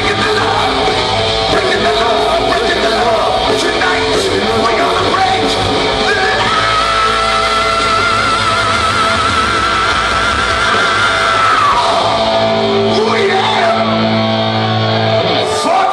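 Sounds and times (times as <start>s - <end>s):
electric guitar: 0.0s - 15.9s
lead vocals: 0.0s - 15.9s
live rock band playing: 0.0s - 15.9s.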